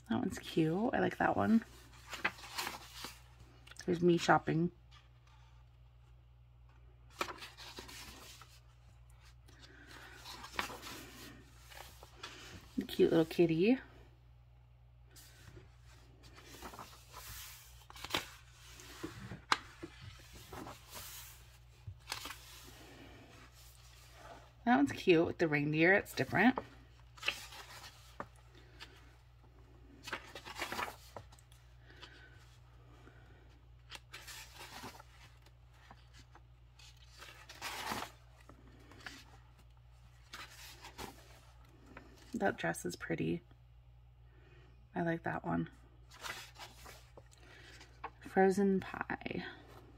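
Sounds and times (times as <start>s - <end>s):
paper rustling: 1.5s - 3.6s, 4.9s - 13.2s, 15.2s - 24.4s, 26.0s - 29.1s, 29.9s - 32.6s, 33.8s - 42.3s, 46.1s - 48.2s.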